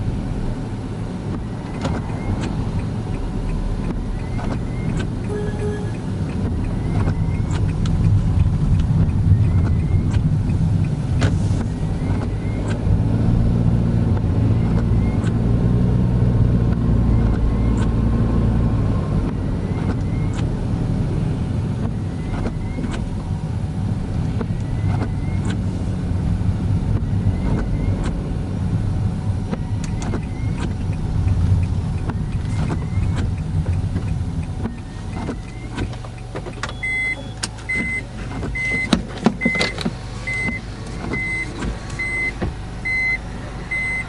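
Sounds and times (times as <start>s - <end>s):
car engine and tyre noise: 0.0s - 44.0s
regular electronic beep: 4.1s - 7.8s, 36.6s - 40.6s, 41.2s - 44.0s.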